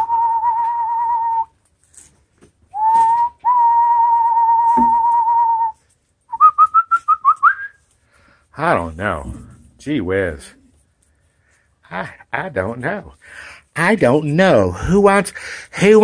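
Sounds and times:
person whistling: 0.0s - 1.5s, 2.7s - 7.8s.

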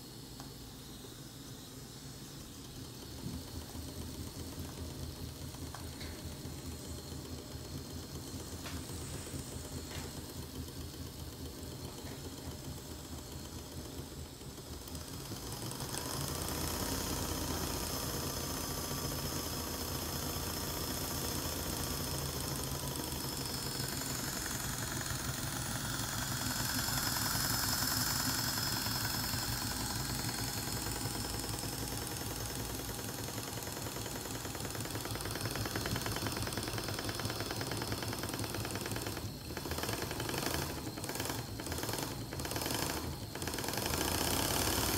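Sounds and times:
steam engine running: 0.0s - 44.9s
steam hissing: 0.0s - 44.9s.

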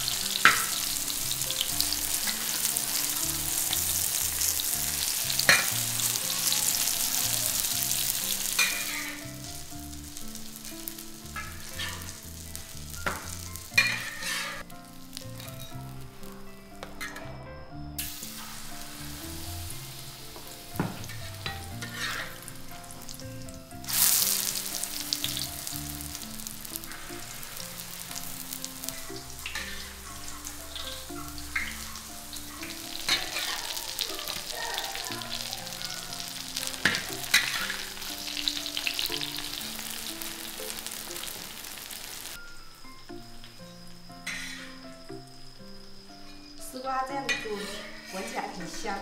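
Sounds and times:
utensil clicking and scraping in pan: 0.0s - 9.4s, 10.2s - 14.7s, 20.4s - 23.2s, 23.9s - 39.7s, 47.3s - 48.8s
pancakes sizzling in hot oil: 0.0s - 16.4s, 18.0s - 49.0s
quiet background music: 0.0s - 49.0s.

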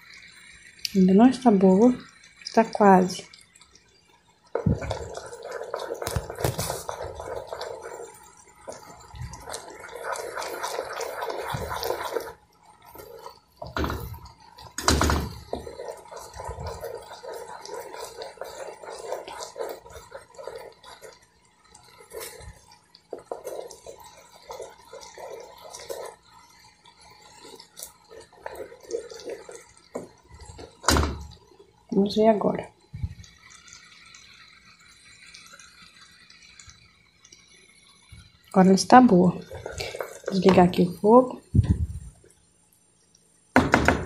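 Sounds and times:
thick syrup bubbling and popping: 0.0s - 44.0s
wooden spoon knocking on pot: 13.6s - 21.0s, 29.2s - 31.4s, 43.6s - 44.0s.

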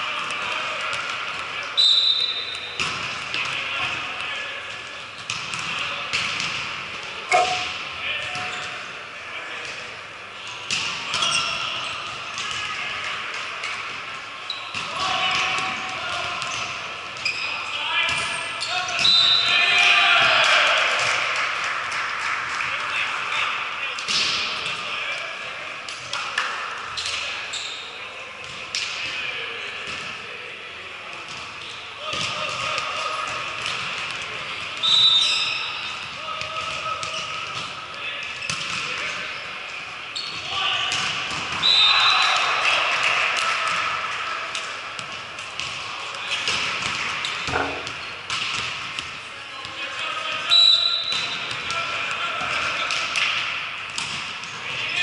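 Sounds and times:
voices echoing in a gym: 0.0s - 55.0s
volleyball smacks echoing: 46.4s - 49.1s.

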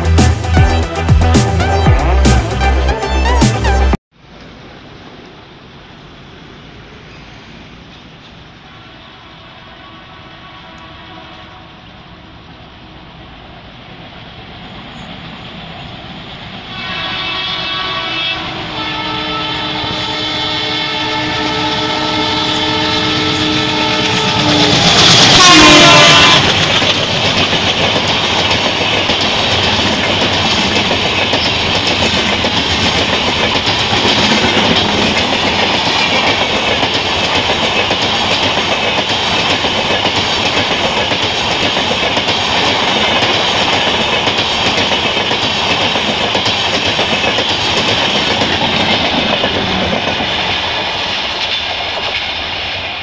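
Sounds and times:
train coaches rolling roar: 0.0s - 53.0s
train horn blast: 8.8s - 12.2s, 16.7s - 27.0s
wheels clacking over rail joints: 23.9s - 52.9s.

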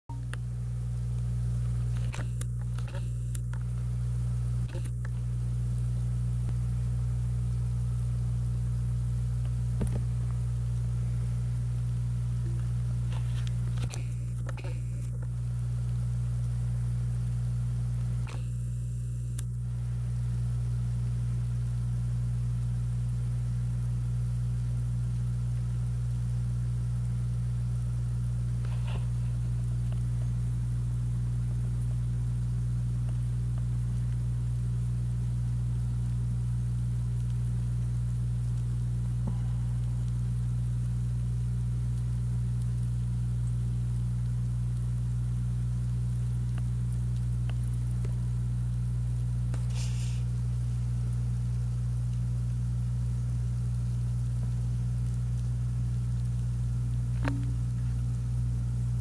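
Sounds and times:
faint ticks: 0.1s - 3.9s, 11.8s - 20.5s, 21.2s - 59.0s
steady low hum: 0.1s - 59.0s
faint hiss: 49.4s - 59.0s.

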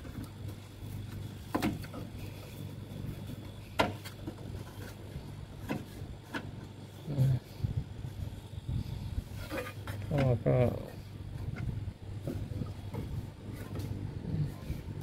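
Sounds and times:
refrigerator compressor humming: 0.0s - 15.0s.

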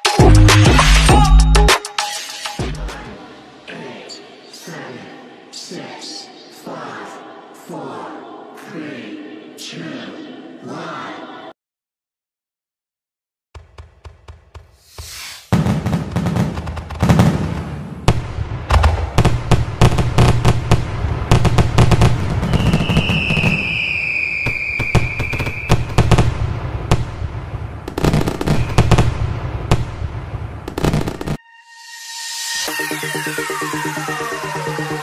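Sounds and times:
fireworks bangs and crackling: 14.5s - 31.4s
high firework whistle: 22.4s - 26.1s, 28.2s - 29.2s, 31.4s - 34.8s.

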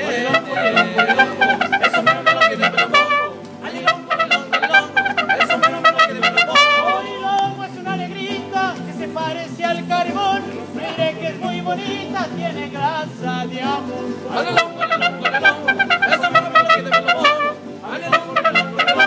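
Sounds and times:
trumpets playing: 0.0s - 7.4s, 14.4s - 19.0s
violin melody with vibrato: 0.0s - 7.4s, 14.4s - 19.0s.

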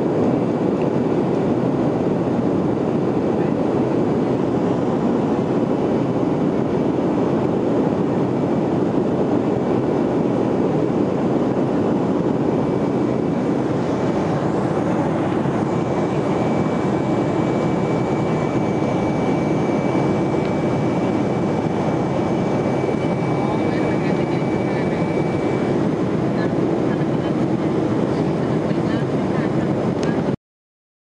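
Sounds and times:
faint high steady whine: 0.0s - 30.3s
jet engines roaring in cabin: 0.0s - 30.4s.

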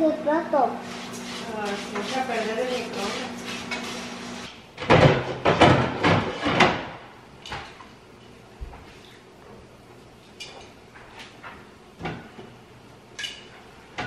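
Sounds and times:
household knocking and clatter: 4.8s - 6.9s.

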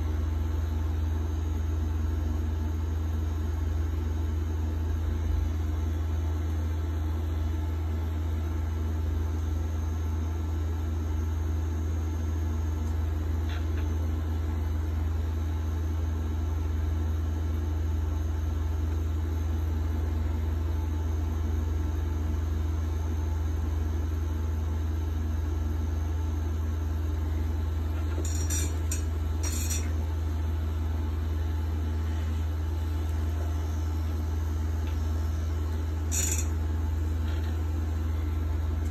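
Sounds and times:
tattoo machine buzzing: 28.0s - 30.0s, 35.4s - 36.8s.

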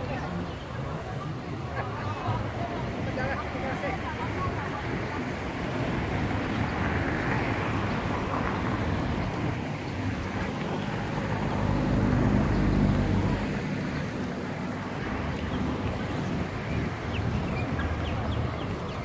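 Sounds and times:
passing cars hum: 0.0s - 19.0s
vehicle engine: 6.2s - 19.0s.

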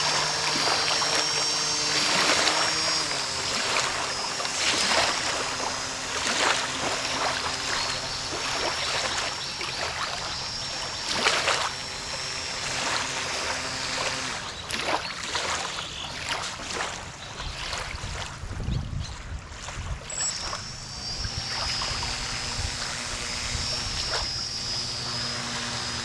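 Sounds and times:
model boat motor humming: 0.0s - 26.0s
small waves washing on shore: 12.7s - 21.8s.

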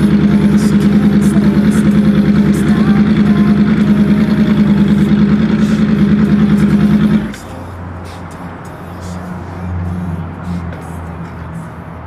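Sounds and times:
motorcycle engine running: 0.0s - 7.7s.

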